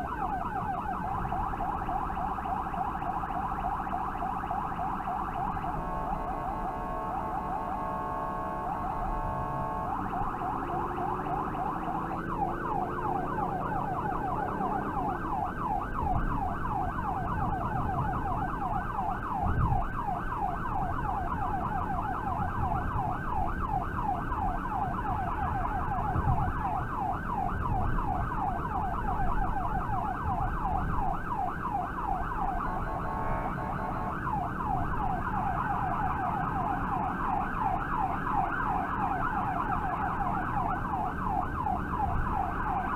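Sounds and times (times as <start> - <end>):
siren yelping: 0.0 - 42.9
horn blare: 5.6 - 11.5, 32.4 - 34.3.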